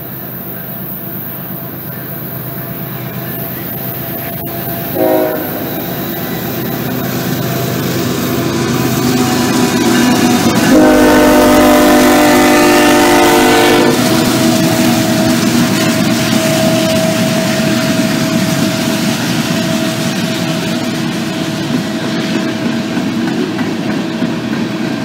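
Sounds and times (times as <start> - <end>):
diesel engine and wheels rumbling: 0.0 - 25.0
locomotive horn: 4.9 - 6.1, 10.6 - 14.4.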